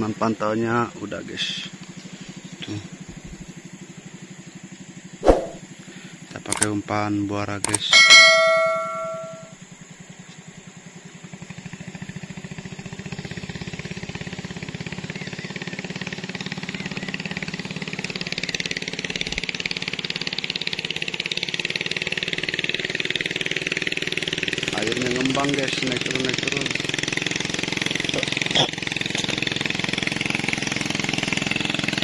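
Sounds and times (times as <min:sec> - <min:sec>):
small boat engine running: 0:00.0 - 0:32.0
bell-like chime: 0:07.9 - 0:09.6.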